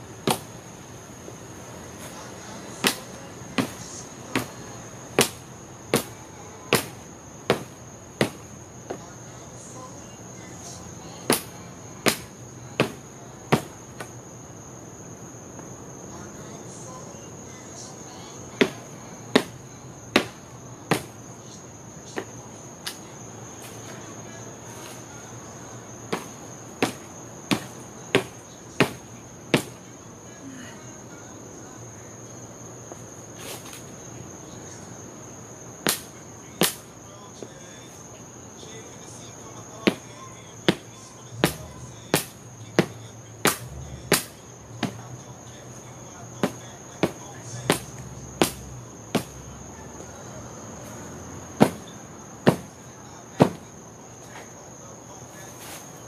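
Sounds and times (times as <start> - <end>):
crickets chirping: 0.0 - 56.0
sharp knocks: 7.5 - 8.4, 29.6 - 29.8, 51.6 - 51.9, 52.5 - 52.7, 53.4 - 53.7.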